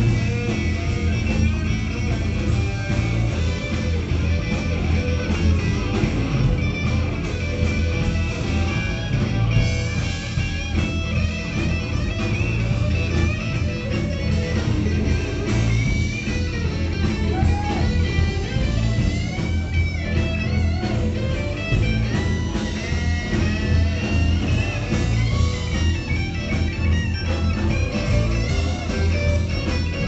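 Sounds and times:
blues-rock band playing: 0.0s - 30.0s
electric guitar bending notes: 0.0s - 30.0s.

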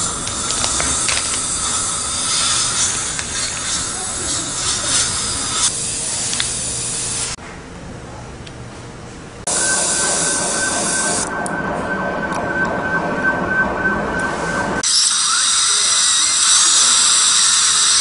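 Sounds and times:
dental handpiece whining: 0.0s - 5.7s, 14.8s - 18.0s
suction hiss: 0.0s - 7.4s.

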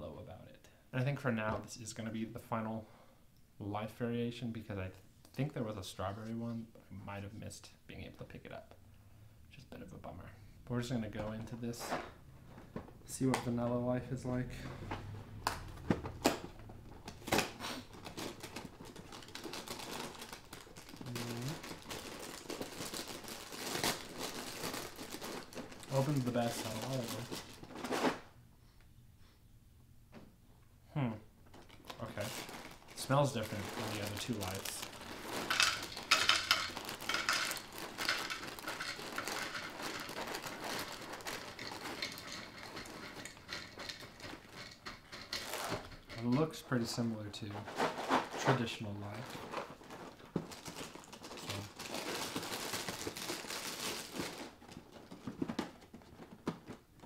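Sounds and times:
cereal pouring into a bowl: 33.0s - 43.1s.

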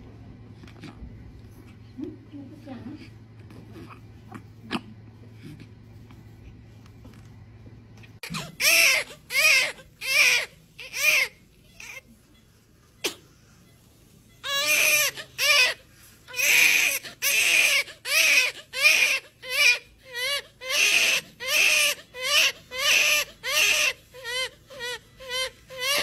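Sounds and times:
newborn baby crying: 8.2s - 12.1s, 14.4s - 26.0s.

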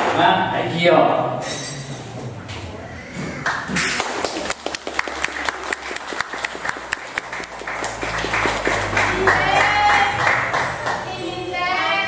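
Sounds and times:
audience applause: 3.4s - 11.0s.

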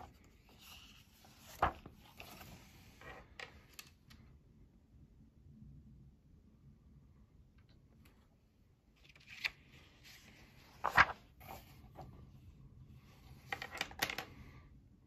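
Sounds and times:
magazine pages rustling: 0.0s - 3.9s, 9.0s - 12.3s.

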